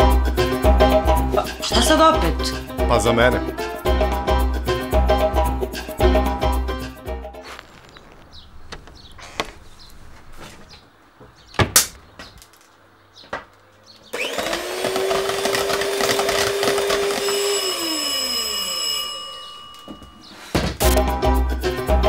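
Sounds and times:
soft handling sounds: 7.4 - 10.9
electric hand mixer running: 14.2 - 19.4.

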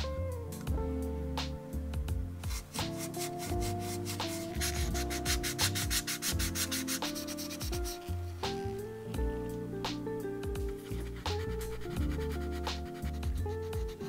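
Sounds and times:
soft background music: 0.0 - 14.0
sanding plastic part: 2.5 - 8.1, 10.8 - 14.0.

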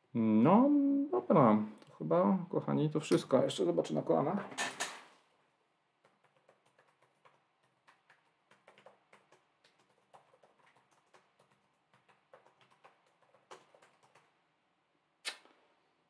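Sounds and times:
typing on laptop keyboard: 6.0 - 14.3.

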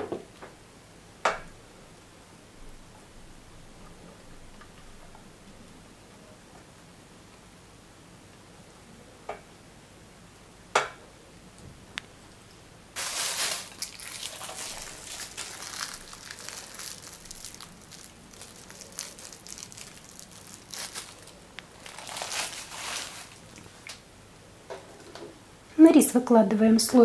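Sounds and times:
plastic bag crinkling: 13.0 - 24.0.

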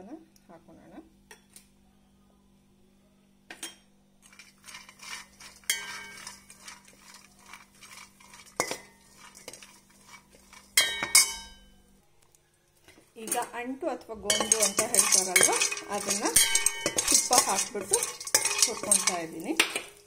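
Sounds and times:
spatula scraping metal pan: 4.2 - 11.5, 14.3 - 20.0
spatula clinking on pan: 4.4 - 11.6, 14.3 - 20.0.

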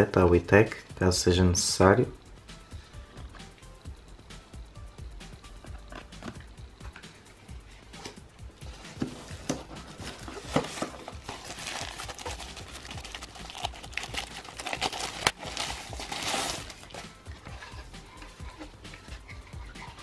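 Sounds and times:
plastic wrapping crinkling: 9.8 - 17.8.

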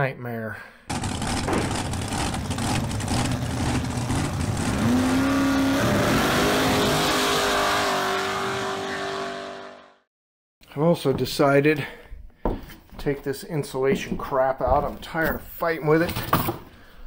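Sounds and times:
car engine revving: 0.9 - 10.0.

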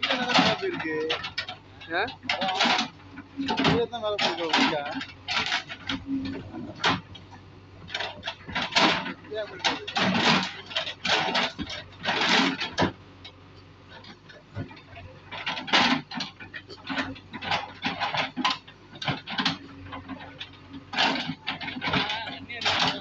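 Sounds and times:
bricks clattering: 0.0 - 1.3
people talking: 0.0 - 5.0, 9.2 - 10.5, 21.8 - 23.0
engine hum: 0.0 - 23.0.

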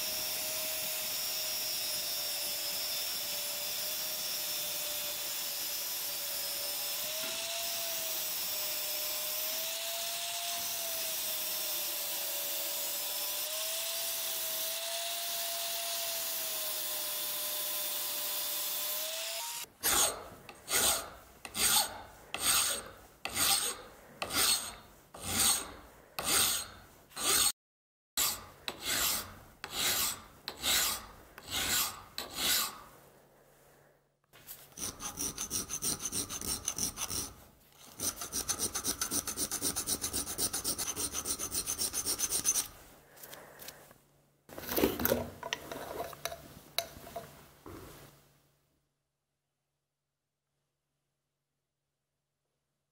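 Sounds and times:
angle grinder cutting steel: 0.0 - 27.5, 28.2 - 32.8, 34.8 - 42.8
hand file rasping steel: 19.0 - 27.6, 28.2 - 33.0, 34.7 - 43.8.

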